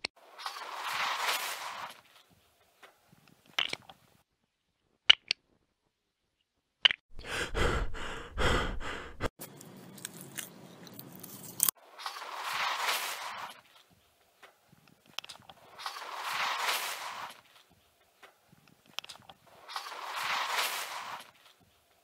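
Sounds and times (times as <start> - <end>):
loud crunching and scraping: 15.4 - 17.8, 19.4 - 21.8.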